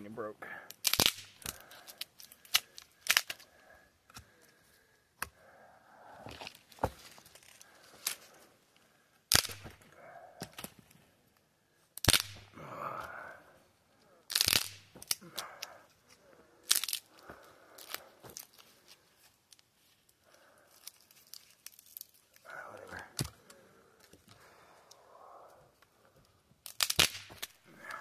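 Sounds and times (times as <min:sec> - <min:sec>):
dry branches snapping: 0:00.7 - 0:03.5, 0:09.3 - 0:10.8, 0:12.0 - 0:13.0, 0:14.3 - 0:15.8, 0:16.6 - 0:18.6, 0:20.8 - 0:24.2, 0:26.6 - 0:28.0
twigs rustling: 0:00.7 - 0:04.8, 0:05.4 - 0:11.1, 0:14.0 - 0:25.9.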